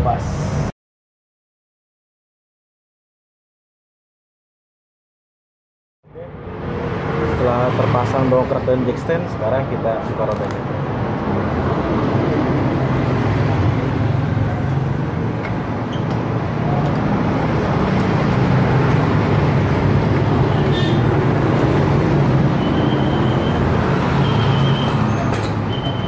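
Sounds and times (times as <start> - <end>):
short high squeaks: 24.2 - 26.0.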